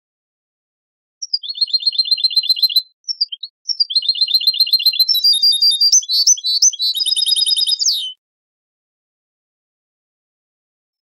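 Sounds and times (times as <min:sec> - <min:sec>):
sharp rising whistles: 0:01.2 - 0:08.1
goldfinch song trills: 0:01.2 - 0:08.2.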